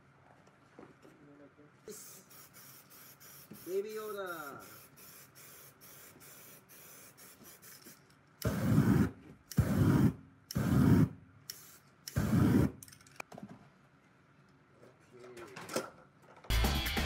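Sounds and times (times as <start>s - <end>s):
spray can flame bursts: 1.9s - 12.8s.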